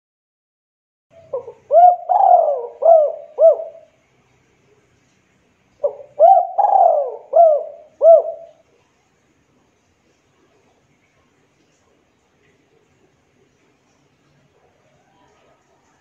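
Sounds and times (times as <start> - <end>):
dove cooing: 1.2 - 4.0, 5.8 - 8.6.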